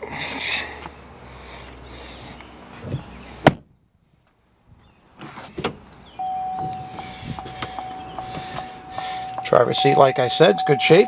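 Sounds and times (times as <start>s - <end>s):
car door warning chime: 6.2s - 11.0s.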